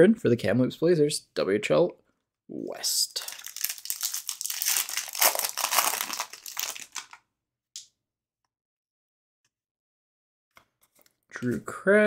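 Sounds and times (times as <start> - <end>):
foil wrapper tearing and crinkling: 3.2 - 7.2.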